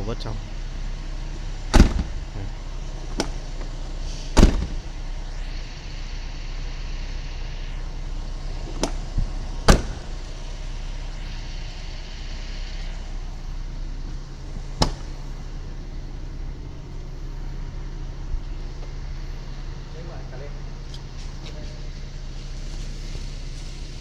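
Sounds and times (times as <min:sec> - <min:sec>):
steady low hum: 0:00.0 - 0:24.0
car door latch opening: 0:01.6 - 0:05.2, 0:08.6 - 0:10.4, 0:14.7 - 0:15.4
sharp clicks and knocks: 0:01.7 - 0:02.4, 0:03.0 - 0:03.8, 0:04.4 - 0:05.0, 0:08.7 - 0:10.3, 0:14.8 - 0:15.2.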